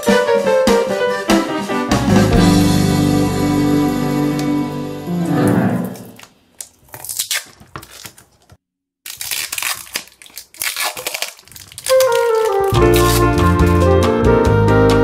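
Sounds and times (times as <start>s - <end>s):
background music: 0.0s - 6.1s, 12.1s - 15.0s
plastic wrap crinkling: 6.0s - 13.8s.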